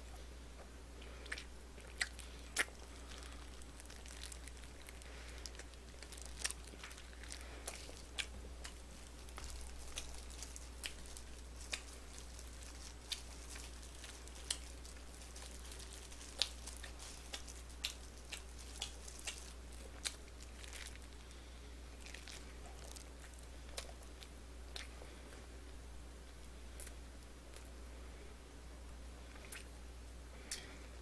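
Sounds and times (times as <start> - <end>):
low steady hum: 0.0 - 31.0
chewing crispy fried chicken: 0.1 - 25.5
plastic glove crinkling: 2.0 - 24.3.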